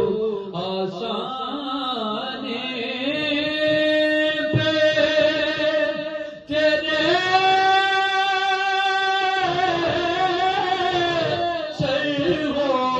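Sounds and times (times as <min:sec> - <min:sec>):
man singing into microphone: 0:00.0 - 0:12.9
breath: 0:06.2 - 0:06.5.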